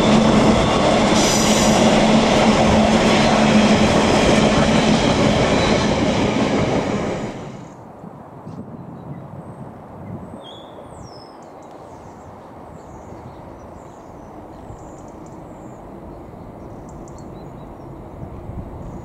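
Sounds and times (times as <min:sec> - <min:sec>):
train hum: 0:00.0 - 0:08.4, 0:11.4 - 0:19.0
small birds chirping: 0:10.3 - 0:19.0.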